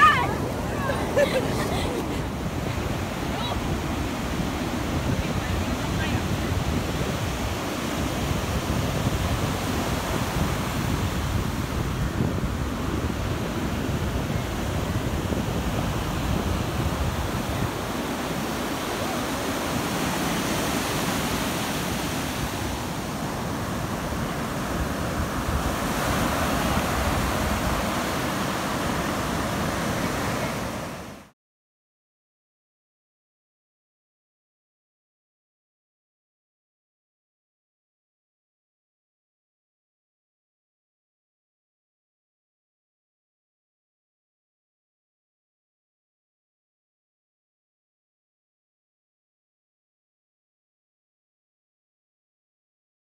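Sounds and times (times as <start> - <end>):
wind rumbling on microphone: 0.0 - 31.1
ocean surf breaking on beach: 0.0 - 31.3.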